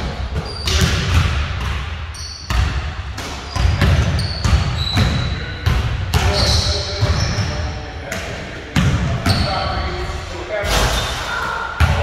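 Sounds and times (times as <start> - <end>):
basketballs bouncing on wooden floor: 0.0 - 7.6, 8.8 - 9.5.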